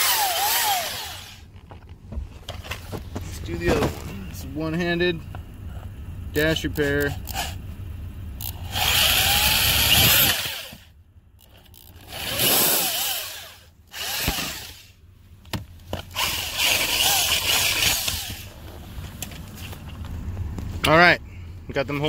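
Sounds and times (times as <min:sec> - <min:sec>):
power drill boring into plastic: 0:00.0 - 0:01.4, 0:08.5 - 0:10.8, 0:11.8 - 0:14.9, 0:16.1 - 0:18.5.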